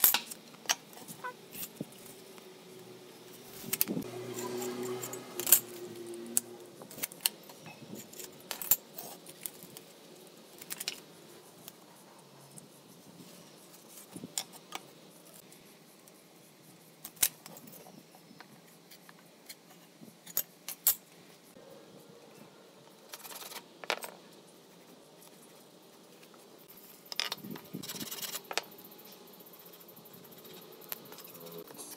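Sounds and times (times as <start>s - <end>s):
metal tools clinking on concrete: 3.7s - 5.8s.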